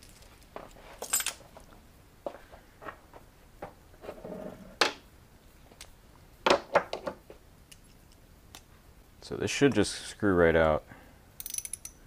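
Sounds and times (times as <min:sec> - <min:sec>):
metal parts clinking on workbench: 0:01.0 - 0:01.5, 0:11.4 - 0:12.0.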